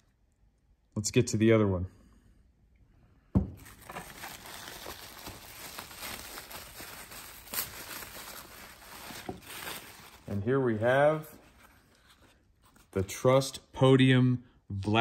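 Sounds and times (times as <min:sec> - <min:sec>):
thump: 0:03.3 - 0:03.6
plastic bag crinkling: 0:03.6 - 0:11.4.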